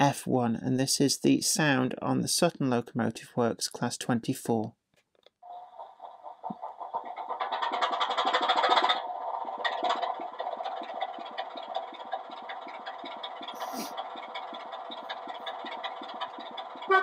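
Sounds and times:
diesel engine starting and idling: 5.5 - 17.0
short hiss: 13.6 - 14.0.

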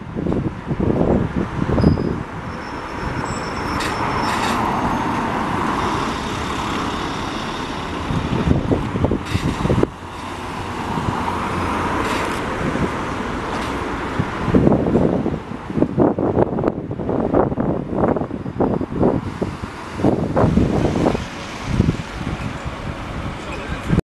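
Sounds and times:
bus engine running: 0.0 - 24.0
wind buffeting microphone: 0.0 - 24.0
tyres hissing on road: 2.3 - 14.8, 18.6 - 24.0.

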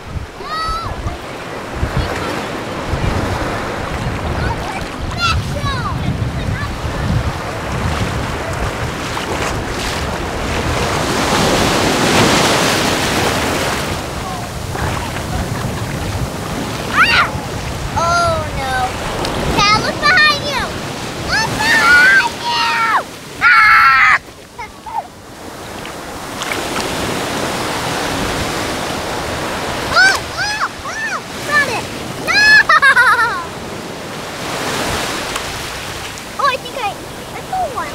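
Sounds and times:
wind buffeting microphone: 0.0 - 23.5, 24.2 - 37.9
small waves breaking: 0.0 - 37.9
surf washing up sand: 0.0 - 37.9
child's high-pitched cry: 0.4 - 1.0, 16.9 - 17.4, 21.3 - 24.2, 29.9 - 31.7, 32.3 - 33.5.

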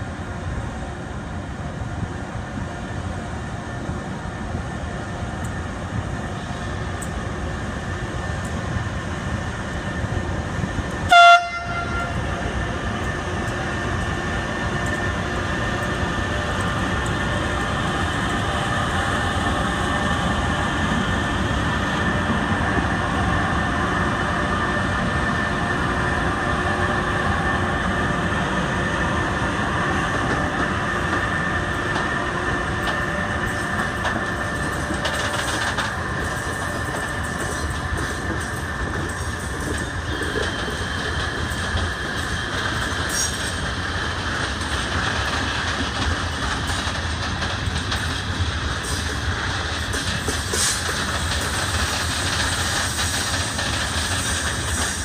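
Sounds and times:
train wheels rumbling on rails: 0.0 - 55.0
train horn blast: 11.1 - 12.4.

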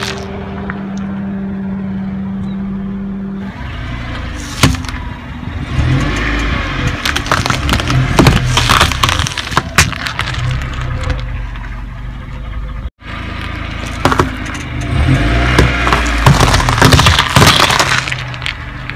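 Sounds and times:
car tyre crushing vegetables: 0.0 - 0.3, 4.4 - 5.1, 5.7 - 11.8, 13.3 - 18.9
car engine running low: 0.0 - 18.9
potatoes crunching and cracking: 7.0 - 11.3, 15.4 - 18.9.

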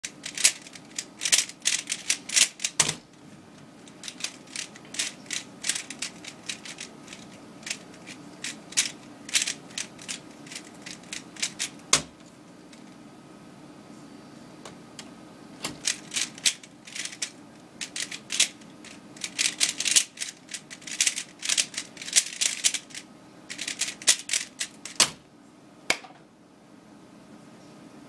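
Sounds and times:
plastic puzzle cube clacking: 0.0 - 3.0, 3.9 - 12.1, 15.7 - 25.2.

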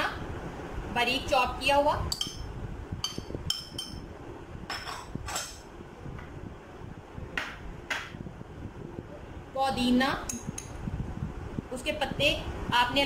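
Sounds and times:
metal spoon clinking on dish: 2.1 - 4.0.

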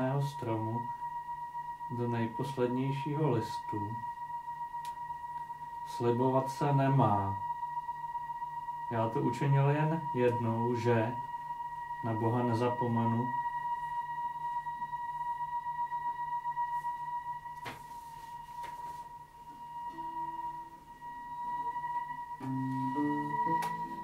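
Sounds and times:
theremin high tone: 0.0 - 24.0
guitar notes: 22.4 - 24.0.

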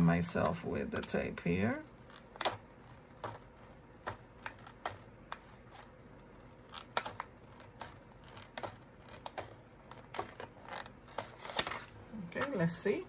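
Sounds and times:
scissors snipping paper: 1.9 - 11.8.

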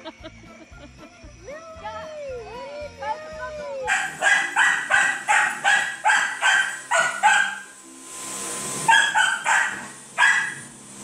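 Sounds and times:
vacuum cleaner running: 0.0 - 11.0
small dog yapping: 3.9 - 7.6, 8.9 - 10.6.

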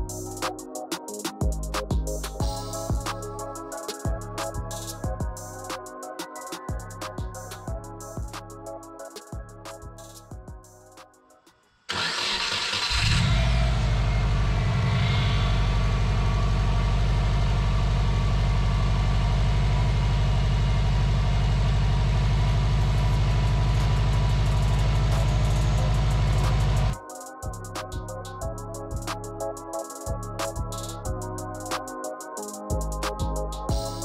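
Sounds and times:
car engine starting and idling: 11.9 - 27.0.

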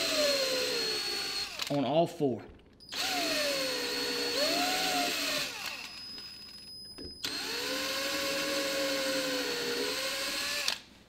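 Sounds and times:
cordless drill drilling into wood: 0.0 - 1.8, 2.9 - 6.4, 7.2 - 10.8.

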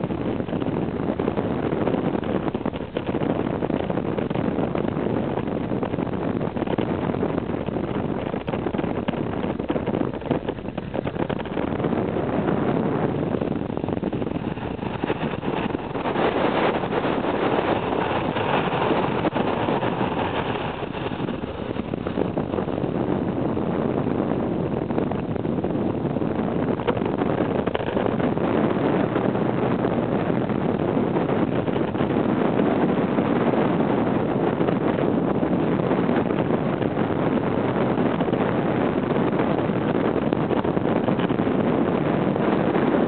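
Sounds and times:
engine and road noise: 0.0 - 33.2
wind rushing on microphone: 0.0 - 43.0.

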